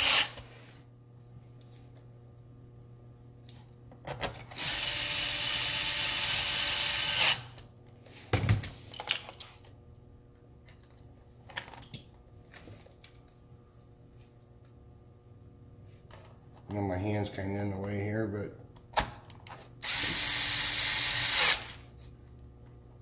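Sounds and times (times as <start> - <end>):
electric screwdriver running: 4.5 - 7.5, 19.8 - 21.8.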